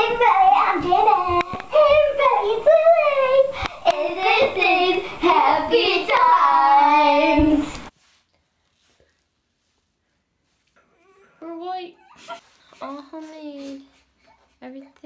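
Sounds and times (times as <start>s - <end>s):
girls singing together: 0.0s - 7.9s.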